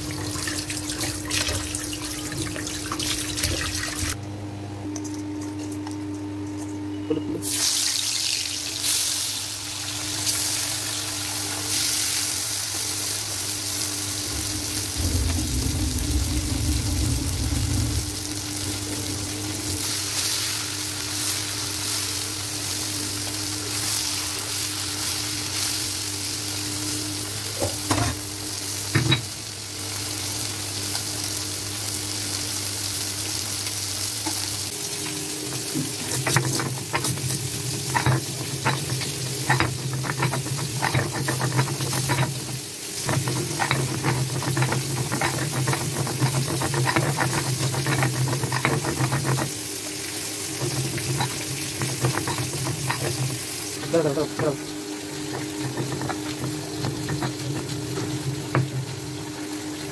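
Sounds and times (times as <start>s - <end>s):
fish sizzling in hot oil: 7.4s - 59.9s
scraping knocks: 55.3s - 58.8s.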